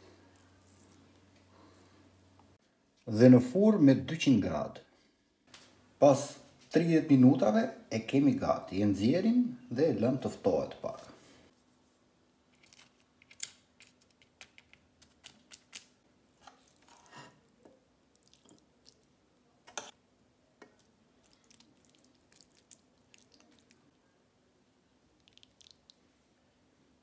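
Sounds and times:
soft squelches of food scooped: 0:00.1 - 0:03.1, 0:14.6 - 0:20.0, 0:20.6 - 0:26.2.

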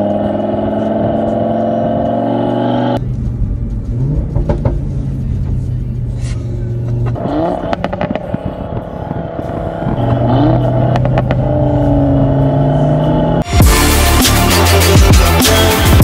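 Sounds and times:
car engine droning: 0:00.0 - 0:16.0
exhaust pops and crackles: 0:03.1 - 0:05.0, 0:06.9 - 0:10.3.

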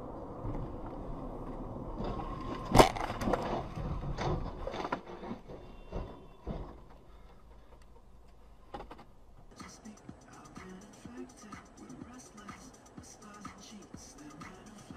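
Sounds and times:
car road noise: 0:00.0 - 0:14.9
knocks and clatter of rollover: 0:01.9 - 0:09.2
loud car crash: 0:02.0 - 0:04.7.

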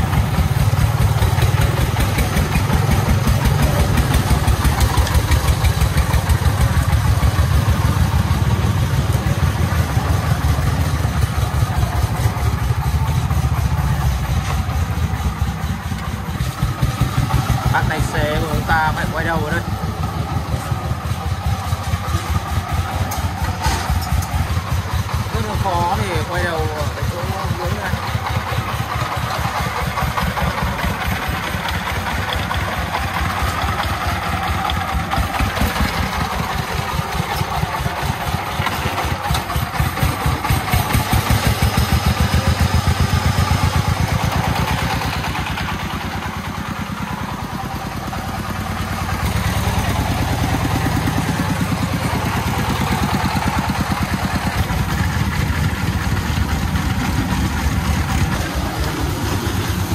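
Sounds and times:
diesel truck engine pulsing: 0:00.0 - 0:59.9.

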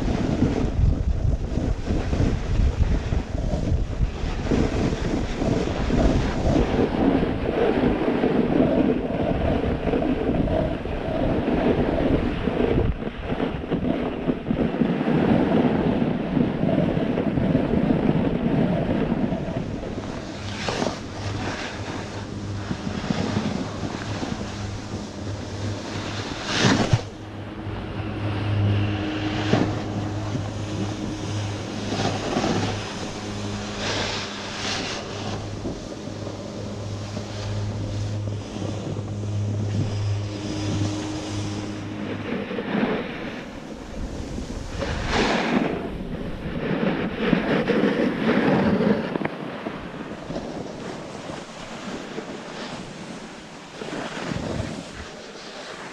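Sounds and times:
steady low hum: 0:00.0 - 0:47.6
wind rushing over microphone: 0:00.0 - 0:55.9.

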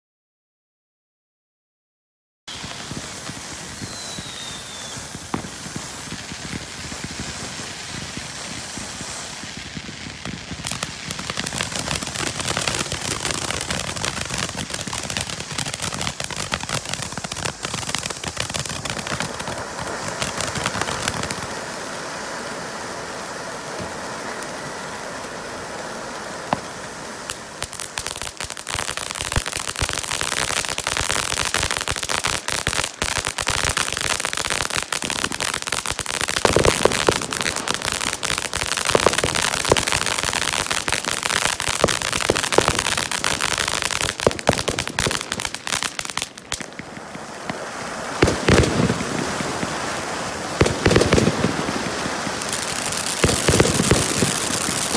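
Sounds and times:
firework crackling pops: 0:02.5 - 0:54.9
firework fountain hissing: 0:02.5 - 0:54.9.

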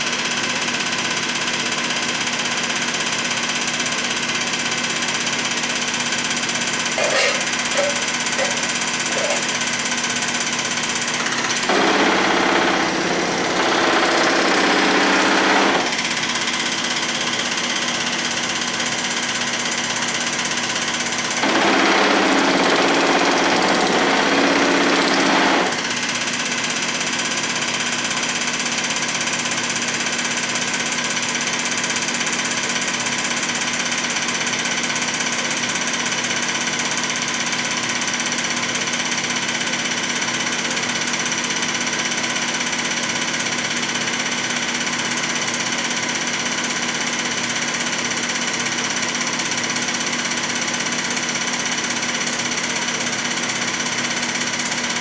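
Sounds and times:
power hammer dies chattering: 0:06.9 - 0:09.6.

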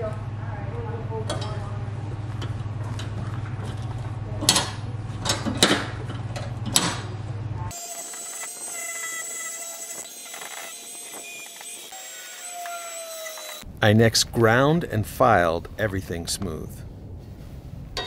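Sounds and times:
steady low hum: 0:00.0 - 0:11.9, 0:13.6 - 0:18.0
angle grinder whining: 0:07.7 - 0:13.7.

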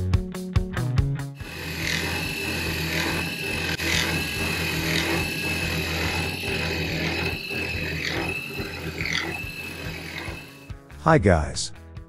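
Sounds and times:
cnc spindle milling steel: 0:01.4 - 0:10.7.

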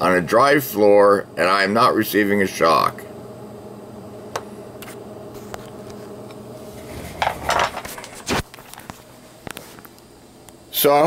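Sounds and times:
test equipment humming: 0:00.0 - 0:11.0
clatter and rustle: 0:06.8 - 0:09.9.

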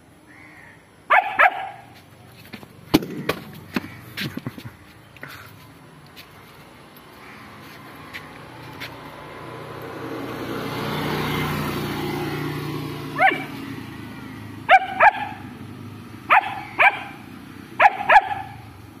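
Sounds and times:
puppy barking: 0:01.1 - 0:02.0, 0:13.1 - 0:13.6, 0:14.6 - 0:15.5, 0:16.3 - 0:18.7
passing vehicle rumble: 0:02.0 - 0:19.0.

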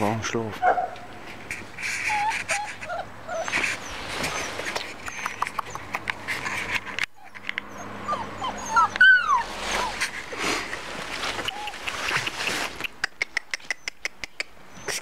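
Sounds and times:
small clicks and rustles: 0:01.3 - 0:07.7
puppies whimpering and yipping: 0:01.6 - 0:13.0, 0:14.6 - 0:15.0
puppy yelp: 0:02.0 - 0:10.2, 0:11.4 - 0:12.2.

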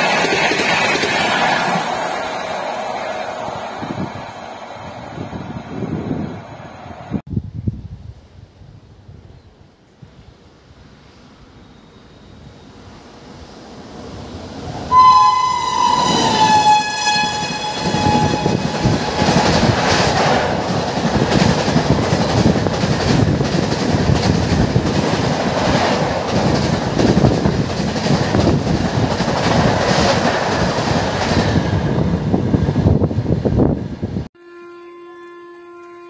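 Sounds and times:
train coaches rumbling past: 0:00.0 - 0:07.2, 0:10.1 - 0:34.3
locomotive air horn: 0:14.9 - 0:19.7, 0:34.4 - 0:36.0.

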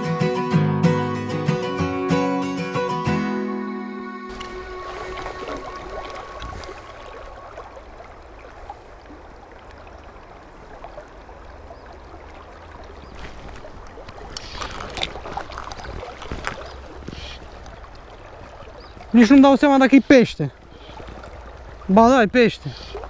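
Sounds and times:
river water flowing: 0:04.3 - 0:23.0
fishing rod knocks and rustles: 0:13.1 - 0:18.6.

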